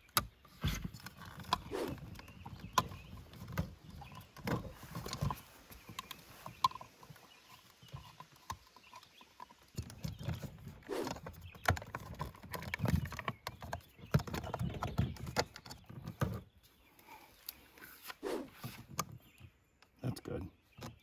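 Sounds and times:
low thumps and rustling: 0.2 - 16.6.

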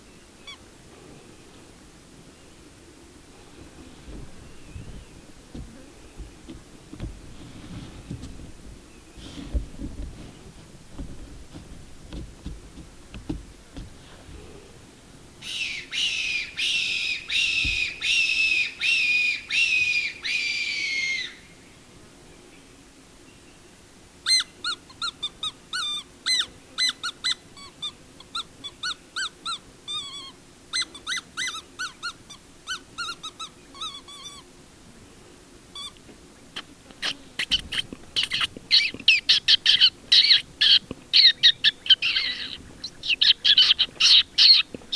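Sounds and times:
predator call squealing: 37.0 - 44.7.

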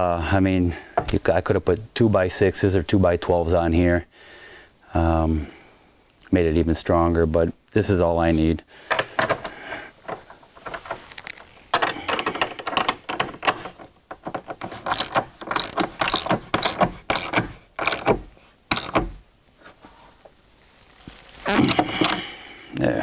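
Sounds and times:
ratchet wrench clicking: 14.9 - 19.0.

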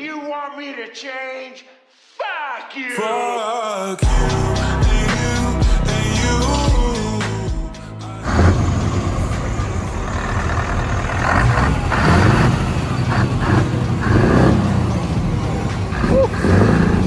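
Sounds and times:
diesel engine idling and revving: 7.8 - 17.0.

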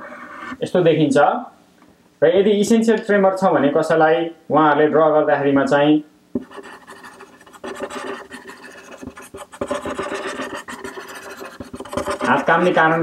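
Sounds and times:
marker scratching on paper: 6.4 - 13.0.

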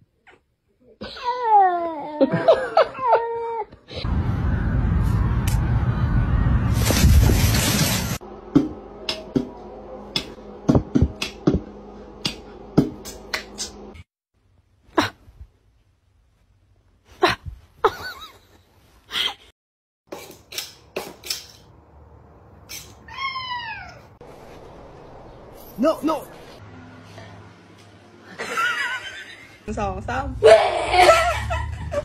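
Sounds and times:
cat meowing: 23.1 - 24.1.

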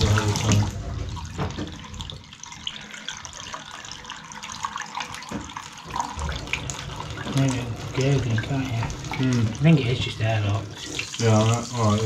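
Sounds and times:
tap water splashing into bath: 0.0 - 12.0.

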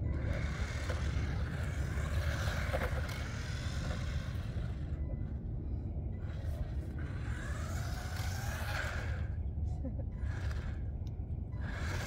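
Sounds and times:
steady low rumble: 0.0 - 12.0
toy car motor whirring: 0.0 - 12.0.

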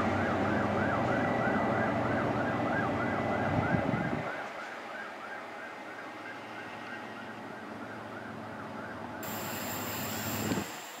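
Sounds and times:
diesel train engine running: 9.0 - 11.0.

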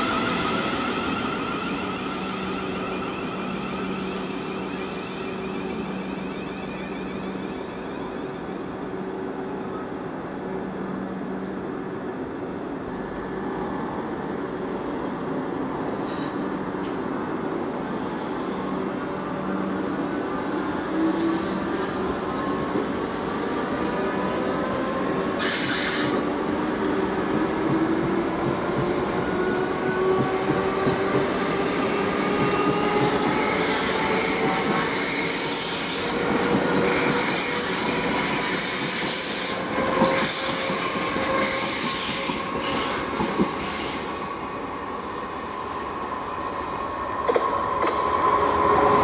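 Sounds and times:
wheels squealing on rails: 0.0 - 8.7, 13.0 - 49.0.

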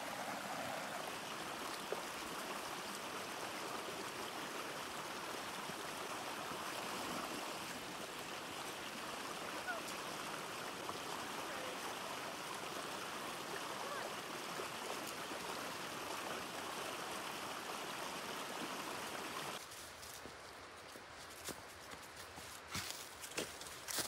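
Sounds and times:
stream rushing over rocks: 0.0 - 19.6
faint footsteps on trail: 0.9 - 2.6, 19.6 - 24.0.

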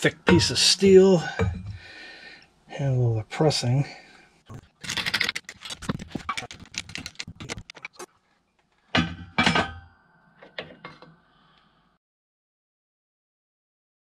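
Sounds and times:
steel parts clattering in press: 9.0 - 9.8.

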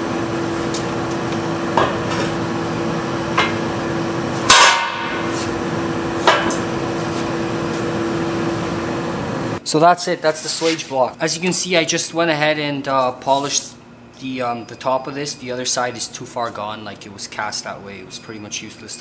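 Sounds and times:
steady hum: 0.0 - 19.0.

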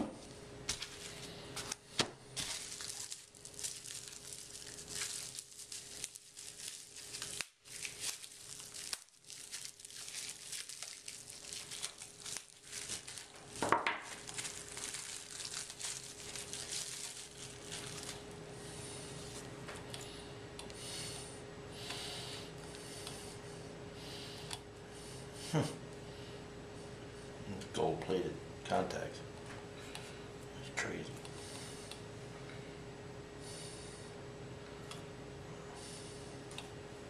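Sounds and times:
bubble wrap crinkling: 0.7 - 19.6.

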